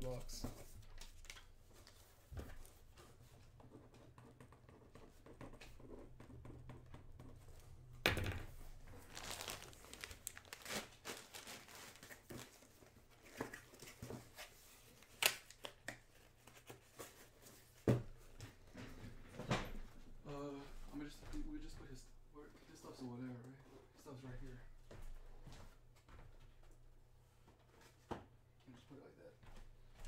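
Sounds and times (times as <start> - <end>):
plastic bag crinkling: 8.9 - 12.4.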